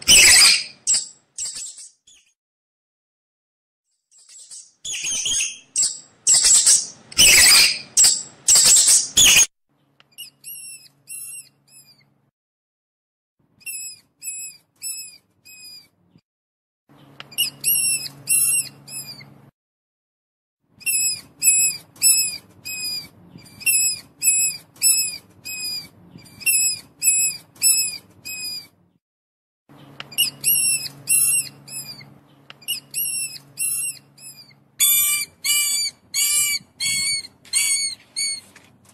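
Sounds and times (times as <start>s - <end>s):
mouse squeaking: 0.0s - 2.4s, 4.1s - 9.5s, 10.1s - 12.1s, 13.6s - 15.9s, 17.2s - 19.3s, 20.8s - 28.7s, 30.0s - 38.6s.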